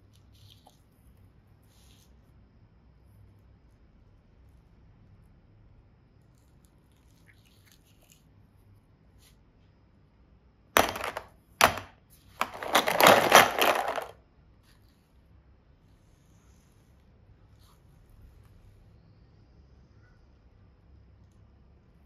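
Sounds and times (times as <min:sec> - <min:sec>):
sharp plastic knocks: 0:10.8 - 0:14.1
plastic capsules clattering: 0:10.8 - 0:14.2.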